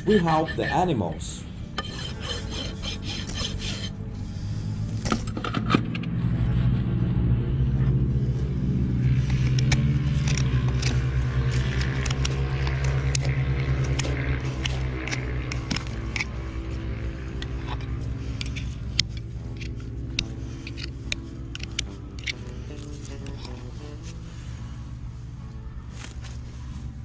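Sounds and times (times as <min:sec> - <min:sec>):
hoof knife scraping hoof: 0:00.0 - 0:05.7, 0:09.1 - 0:24.5
low motor rumble: 0:00.0 - 0:27.0.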